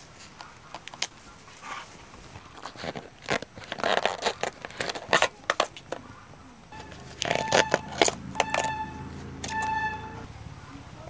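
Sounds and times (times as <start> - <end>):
banana bracts snapping: 0.2 - 6.0.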